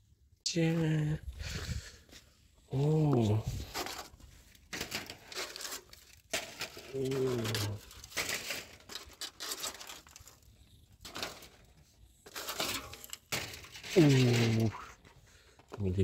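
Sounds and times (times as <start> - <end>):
metal sheets scraping and knocking: 11.0 - 14.8.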